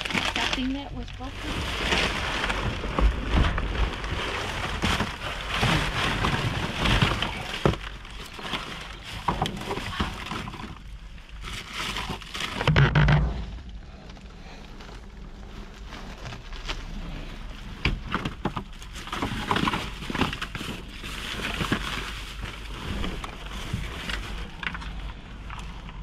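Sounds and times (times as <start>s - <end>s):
trash shifting and knocking: 0.0s - 11.0s, 17.7s - 24.8s
plastic bags crinkling: 0.0s - 26.0s.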